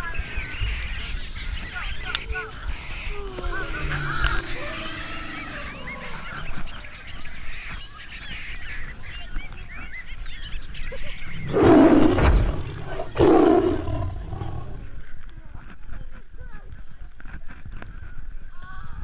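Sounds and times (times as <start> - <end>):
loud rough rushing bursts: 11.4 - 14.8.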